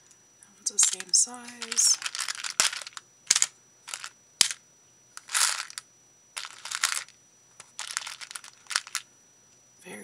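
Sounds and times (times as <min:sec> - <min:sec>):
beads clicking and rattling: 0:00.7 - 0:04.6, 0:05.2 - 0:05.8, 0:06.4 - 0:09.1.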